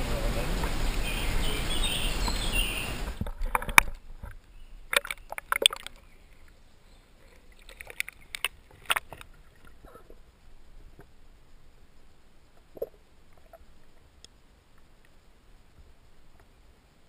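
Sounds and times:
underwater clicks and knocks of stones: 0:03.2 - 0:06.5, 0:07.2 - 0:10.2.

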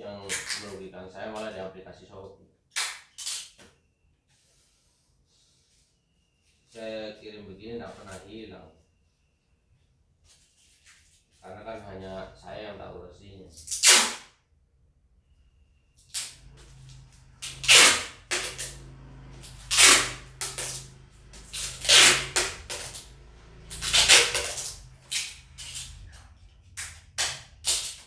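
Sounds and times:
packing tape ripping: 0:02.7 - 0:03.5, 0:13.6 - 0:14.3, 0:16.1 - 0:18.8, 0:19.4 - 0:20.9, 0:21.5 - 0:23.1, 0:23.7 - 0:26.2, 0:26.8 - 0:28.0.

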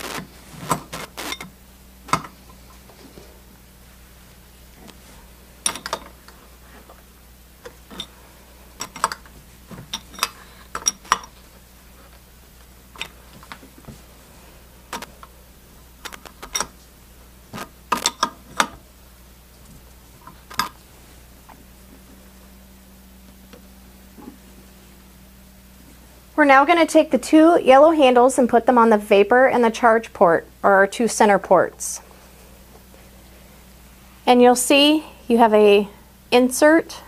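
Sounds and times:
wrench clinking on metal: 0:05.6 - 0:06.1, 0:07.9 - 0:08.1, 0:09.9 - 0:11.4, 0:17.9 - 0:18.7.

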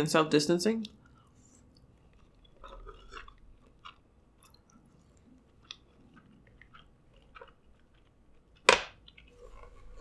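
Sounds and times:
mouth chewing food: 0:00.8 - 0:10.0.

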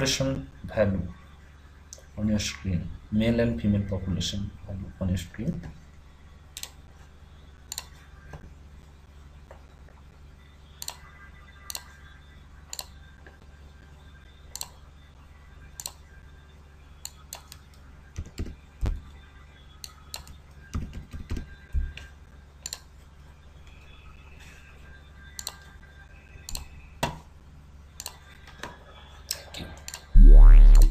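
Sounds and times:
low steady hum: 0:30.2 - 0:30.9.

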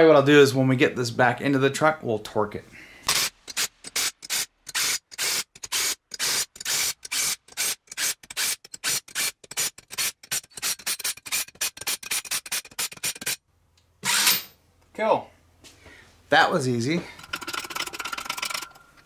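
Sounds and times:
impact tool hammering bursts: 0:03.0 - 0:13.4, 0:14.0 - 0:14.6.

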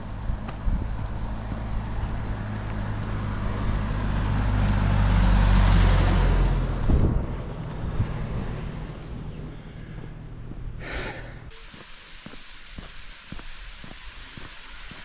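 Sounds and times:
truck driving past: 0:00.0 - 0:10.8.

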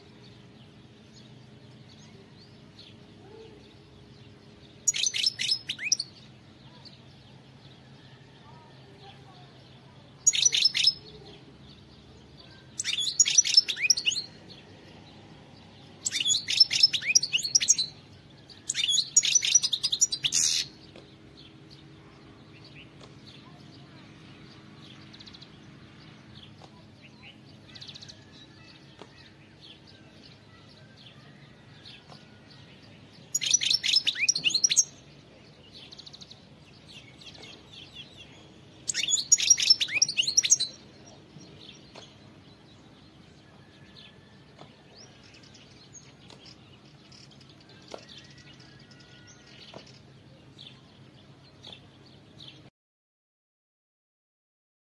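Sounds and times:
bird high twittering song: 0:00.0 - 0:52.7
faint bird chirps: 0:04.8 - 0:11.4, 0:12.4 - 0:21.0, 0:26.5 - 0:50.9.

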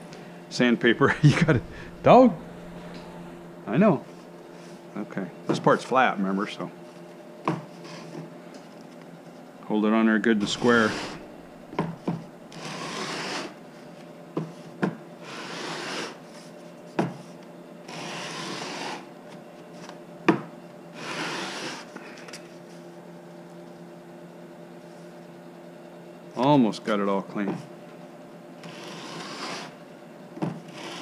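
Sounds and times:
sandpaper rubbing on wood: 0:10.4 - 0:11.4, 0:12.6 - 0:13.5, 0:15.3 - 0:16.2, 0:21.0 - 0:21.8, 0:28.7 - 0:29.8, 0:30.7 - 0:31.0.

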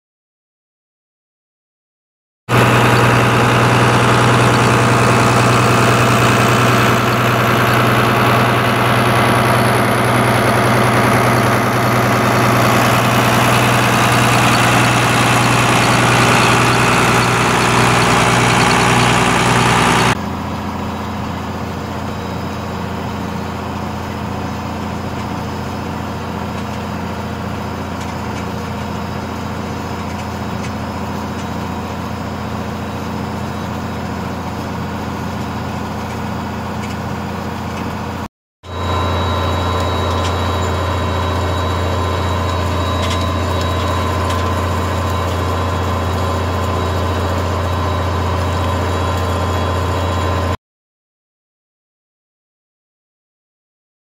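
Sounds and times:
tractor diesel engine running: 0:02.5 - 0:50.6.

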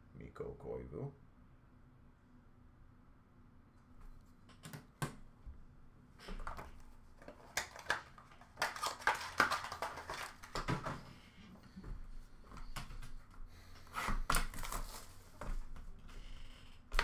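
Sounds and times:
packaging crinkling: 0:06.4 - 0:11.0, 0:14.3 - 0:15.4.

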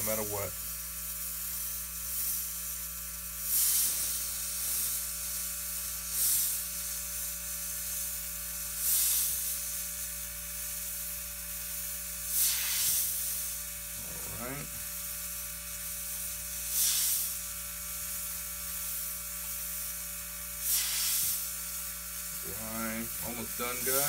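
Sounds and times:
airbrush air hiss: 0:00.0 - 0:24.0
airbrush spray bursts: 0:00.0 - 0:24.0.

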